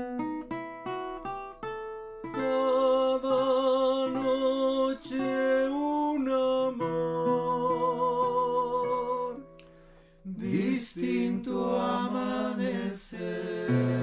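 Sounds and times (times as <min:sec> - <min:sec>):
plucked acoustic guitar: 0:00.0 - 0:11.6, 0:13.5 - 0:14.0
person singing with vibrato: 0:02.3 - 0:09.5, 0:10.2 - 0:14.0.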